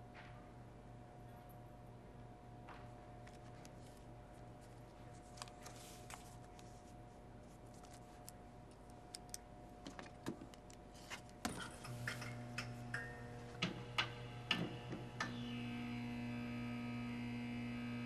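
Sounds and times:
low electrical hum: 0:00.0 - 0:18.0
book and paper rustling: 0:03.3 - 0:08.3.

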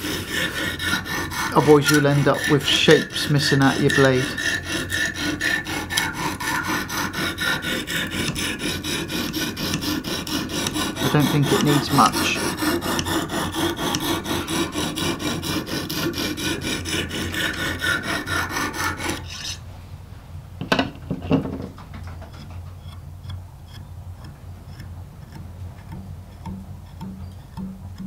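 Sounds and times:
hone rasping along knife edge: 0:00.0 - 0:19.6, 0:22.3 - 0:28.0.

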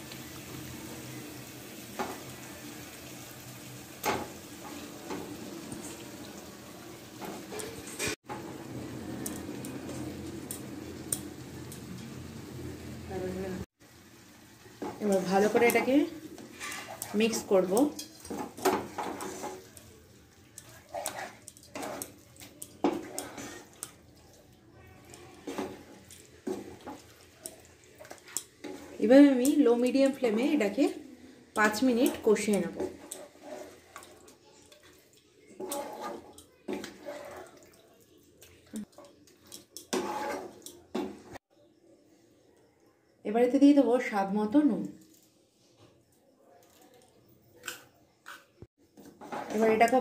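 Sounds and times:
spices sizzling in oil: 0:00.0 - 0:41.5, 0:48.2 - 0:50.0
spatula scraping a pan: 0:07.1 - 0:08.5, 0:14.8 - 0:24.3, 0:25.0 - 0:37.7, 0:39.3 - 0:41.4, 0:48.2 - 0:50.0.

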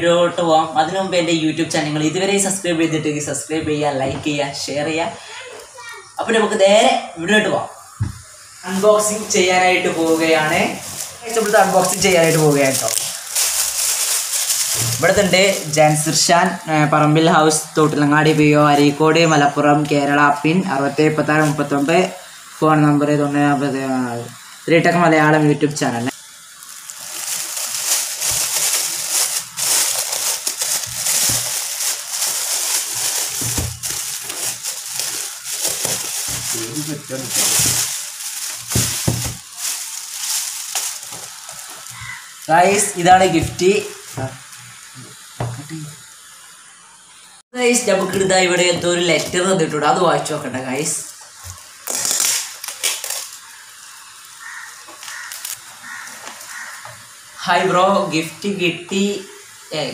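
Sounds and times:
plastic wrapping crinkling: 0:07.9 - 0:16.7, 0:26.1 - 0:45.4, 0:50.2 - 0:57.3
package bumping on table: 0:30.9 - 0:31.6, 0:38.6 - 0:39.4.

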